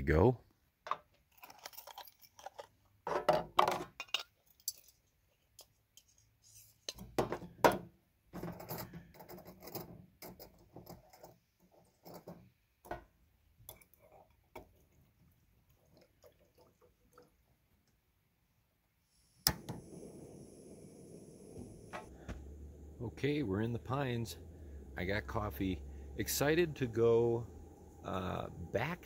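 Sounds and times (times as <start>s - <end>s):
clicks and clinks of stove parts: 4.0s - 4.9s
water pouring into metal pot: 14.7s - 17.8s.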